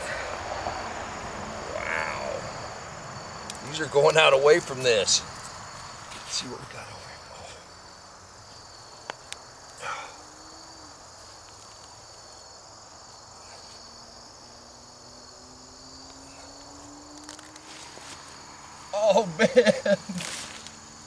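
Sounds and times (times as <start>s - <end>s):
insects chirring: 0.0s - 21.0s
hands rustling loose soil: 17.3s - 20.8s.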